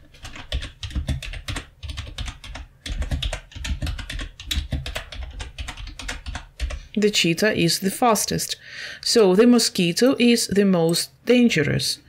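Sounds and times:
computer keyboard typing: 0.0s - 7.0s.

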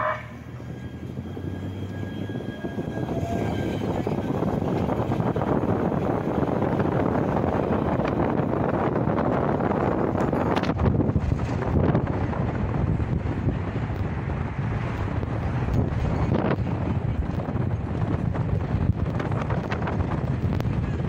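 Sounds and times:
train wheels rumbling: 0.0s - 21.0s.

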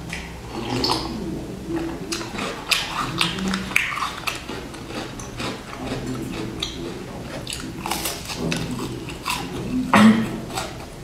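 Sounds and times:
crunchy biscuit chewing: 1.8s - 11.0s.

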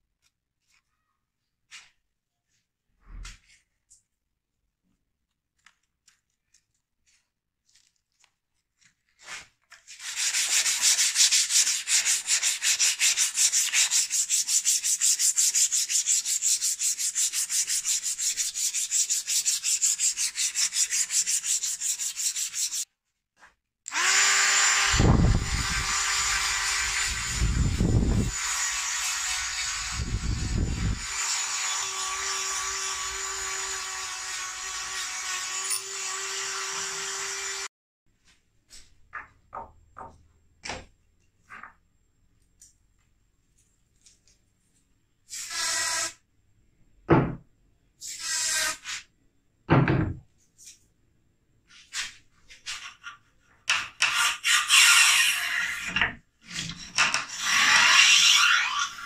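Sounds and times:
bore brush scraping rifle barrel: 9.2s - 22.9s
rotary tool grinding metal: 23.9s - 37.7s, 53.7s - 59.0s.

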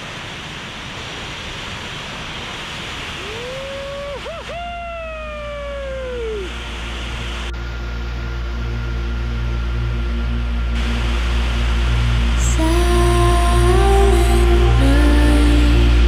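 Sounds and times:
waterfall roaring: 0.0s - 7.5s, 10.8s - 16.0s
steady music: 6.4s - 16.0s.

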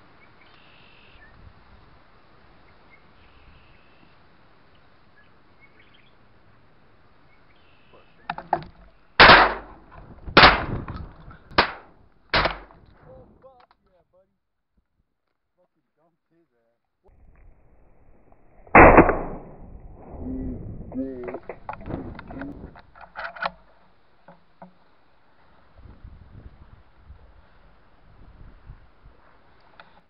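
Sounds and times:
shotgun shots: 9.2s - 10.9s, 11.5s - 12.8s, 18.6s - 19.6s.

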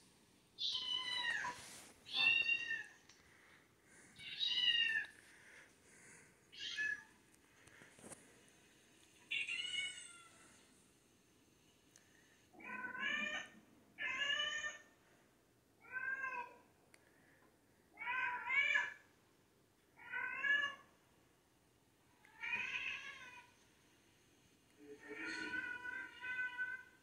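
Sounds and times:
cat meowing through a tv: 12.6s - 14.9s, 18.0s - 19.0s, 25.0s - 27.0s.

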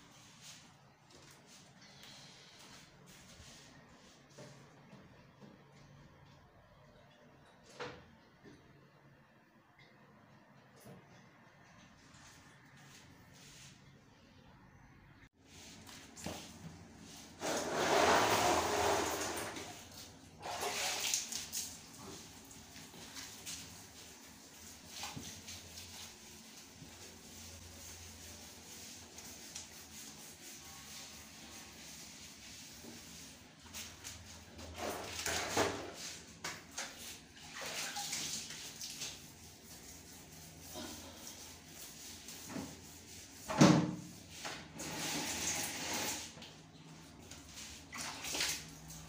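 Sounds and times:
water splashing in a plastic basin: 17.5s - 22.1s, 36.7s - 39.2s, 47.9s - 49.0s
water splashing and swishing: 36.7s - 40.6s, 47.4s - 49.0s.

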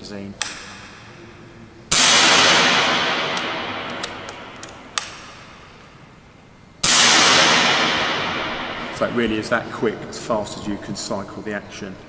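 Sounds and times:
air rifle shots: 0.4s - 6.1s, 6.8s - 9.8s.

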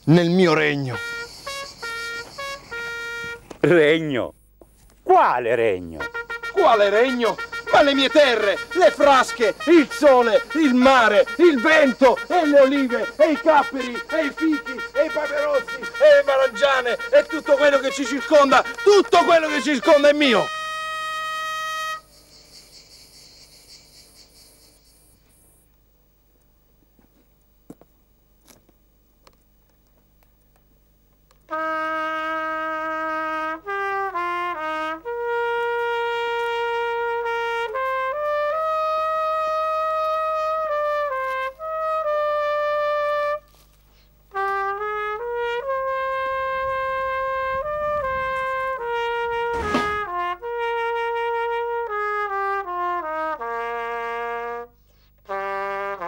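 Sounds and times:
solo trumpet melody: 0.3s - 3.7s, 5.8s - 22.2s, 31.5s - 56.0s
brief knock: 49.5s - 50.1s.

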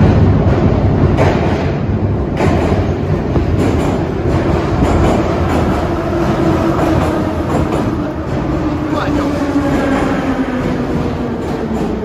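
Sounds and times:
subway train rumble: 0.0s - 12.0s
wheels clacking over rail joints: 0.0s - 12.0s.

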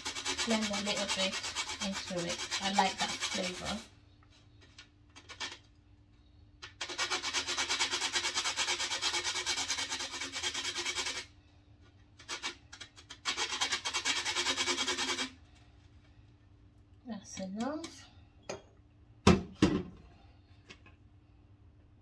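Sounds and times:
nutmeg grating on metal grater: 0.0s - 3.9s, 6.6s - 11.3s, 12.2s - 15.4s.

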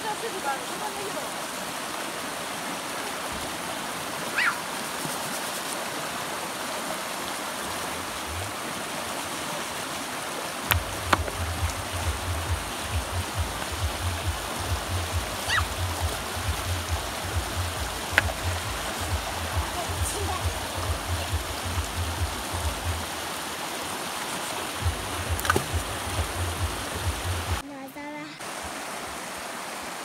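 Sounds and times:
stream rushing over stones: 0.0s - 30.0s.

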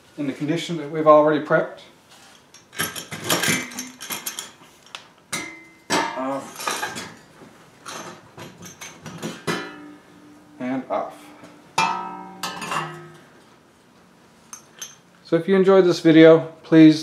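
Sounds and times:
metal auger parts clanking: 2.4s - 4.5s, 11.8s - 13.2s.

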